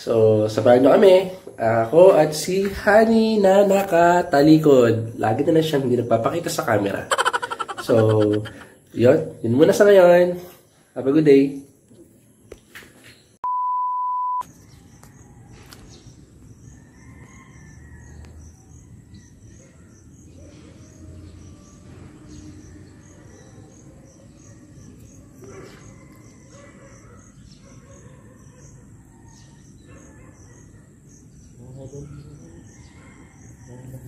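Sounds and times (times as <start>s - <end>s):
insect calls: 3.8s - 10.0s
loud electronic beep: 13.4s - 14.4s.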